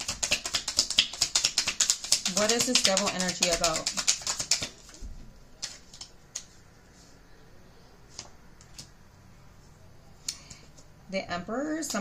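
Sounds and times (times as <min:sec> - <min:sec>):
cards clicking and tapping: 0:00.0 - 0:05.0
faint room hum: 0:00.0 - 0:12.0.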